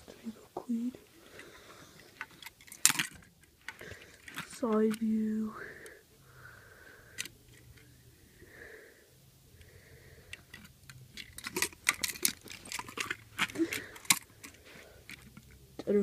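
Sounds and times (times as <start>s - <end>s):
toy cars clicking together: 1.4s - 5.2s, 10.3s - 15.6s.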